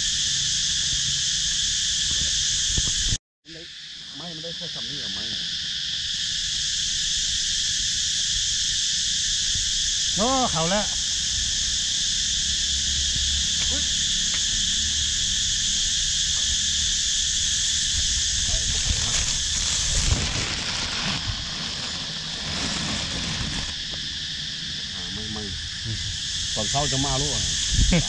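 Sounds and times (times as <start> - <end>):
cicadas droning: 0.0 - 28.0
plastic bag rustling and knocking: 18.6 - 24.0.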